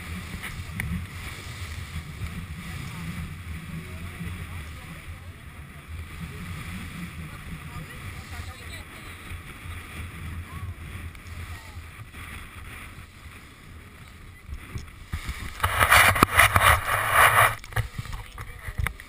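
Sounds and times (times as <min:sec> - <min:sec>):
outboard engine running: 0:00.0 - 0:19.0
rough rush of wind: 0:05.8 - 0:18.9.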